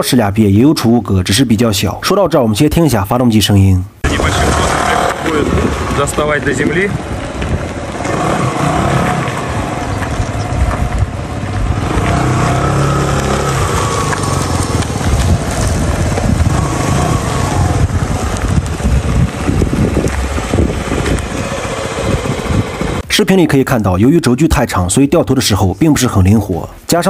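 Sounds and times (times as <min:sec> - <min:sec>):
scooter engine running: 0:04.1 - 0:23.0.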